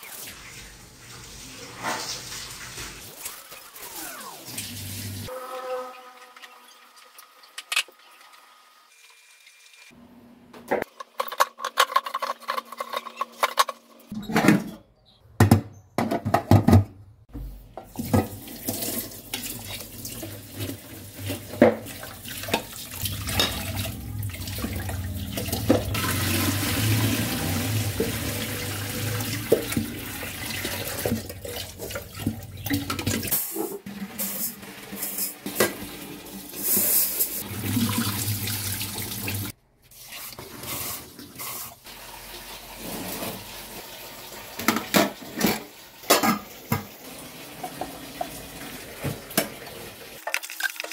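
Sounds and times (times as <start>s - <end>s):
water poured off: 21.8s - 33.4s.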